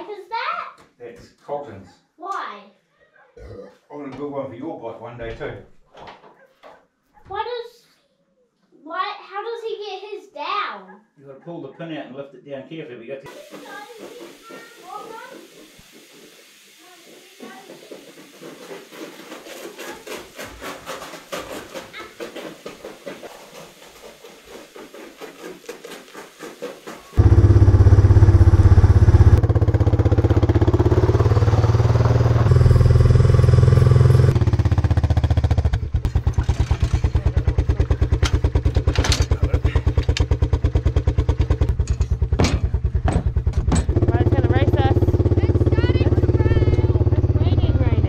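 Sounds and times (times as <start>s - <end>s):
quad bike engine running: 27.2s - 48.0s
handling knocks: 41.7s - 44.1s.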